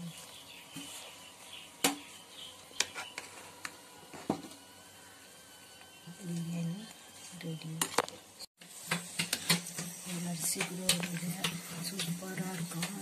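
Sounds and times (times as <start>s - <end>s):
spoon scraping metal pot: 2.8s - 3.7s.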